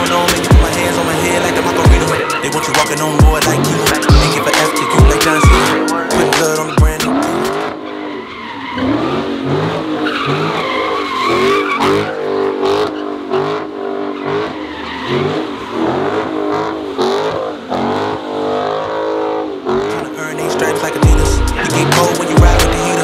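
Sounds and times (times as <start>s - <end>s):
rap beat: 0.0s - 8.1s, 19.7s - 23.0s
car engines revving: 0.0s - 23.0s
car tyres squealing: 0.0s - 23.0s.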